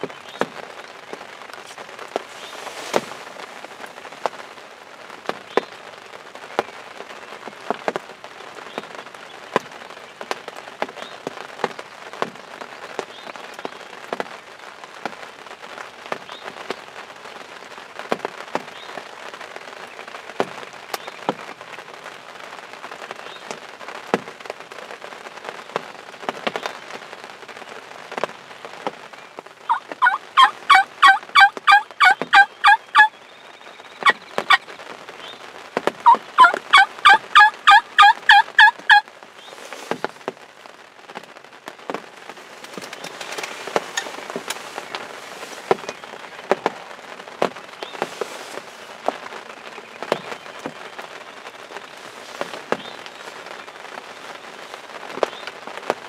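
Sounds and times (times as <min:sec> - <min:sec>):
rain ticking on fabric: 0:00.0 - 0:56.0
turkey yelping: 0:29.7 - 0:33.1, 0:36.0 - 0:39.0.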